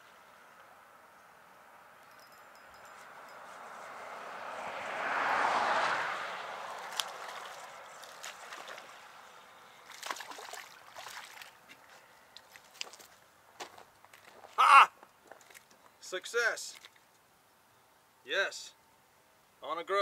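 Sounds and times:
fish splashing at surface: 6.6 - 9.1, 9.8 - 11.6.

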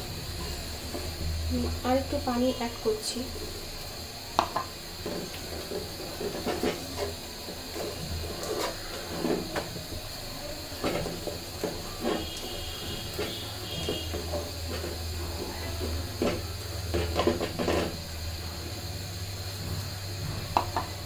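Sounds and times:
gas burner hiss: 0.0 - 21.0
wooden spoon scraping metal pot: 4.6 - 10.0, 10.7 - 18.2.

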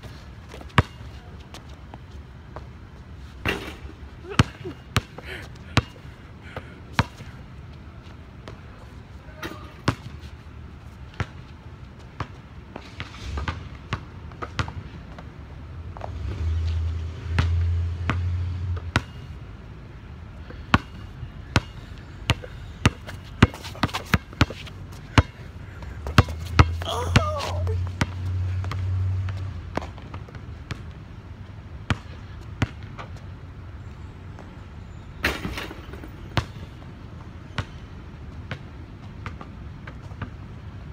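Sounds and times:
basketball bouncing on hard court: 22.3 - 25.4, 26.0 - 28.8, 31.9 - 32.8.

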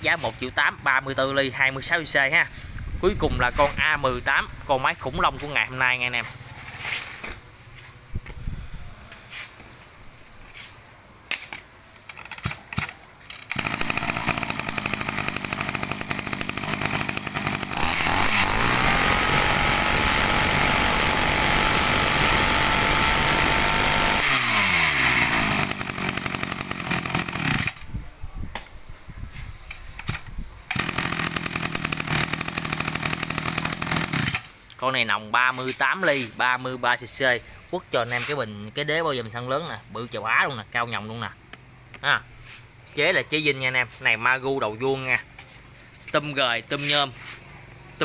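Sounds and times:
brush cutter engine revving: 12.1 - 27.9, 30.0 - 34.6.

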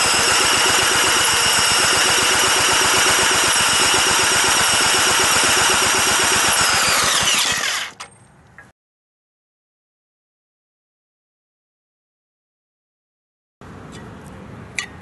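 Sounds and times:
electric drill whine: 0.0 - 8.0
engine turning over pulsing: 0.0 - 8.0.

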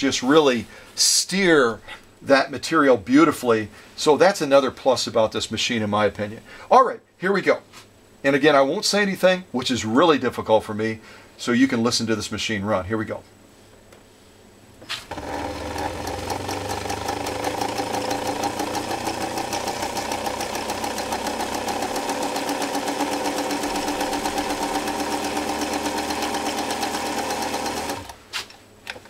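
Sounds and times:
sewing machine stitching leather: 14.9 - 28.2.

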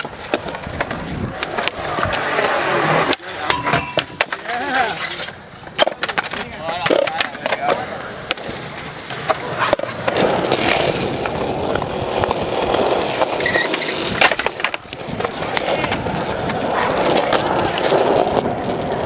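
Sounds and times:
skateboard clacking: 0.0 - 19.0
skateboard wheels rolling on concrete: 0.0 - 19.0.

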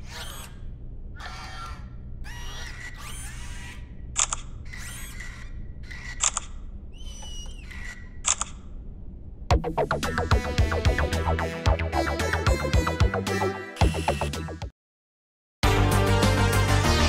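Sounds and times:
camera shutter clicks: 4.2 - 4.5, 6.1 - 6.6, 8.2 - 8.6.

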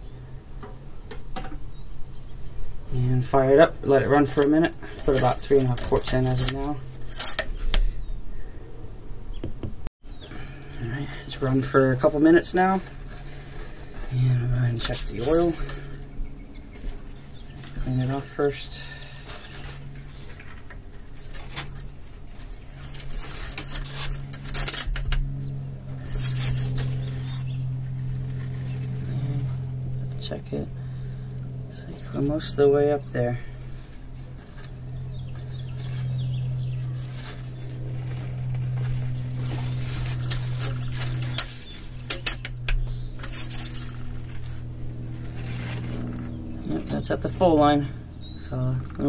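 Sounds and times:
steady low hum: 0.0 - 49.0
dipstick scraping and clicking: 3.9 - 7.9, 34.2 - 47.0.

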